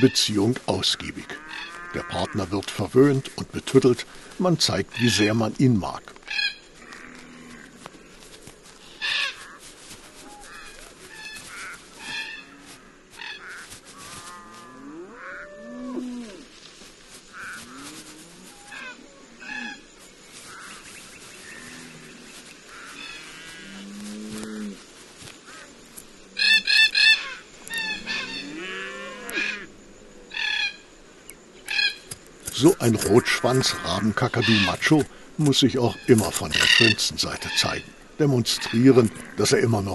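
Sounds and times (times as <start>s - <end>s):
cockatoos calling harshly: 0.0s - 2.4s, 8.7s - 16.5s, 17.2s - 25.7s, 26.4s - 29.7s, 31.7s - 39.5s
cattle lowing: 6.8s - 16.6s, 20.5s - 26.7s, 27.3s - 29.6s.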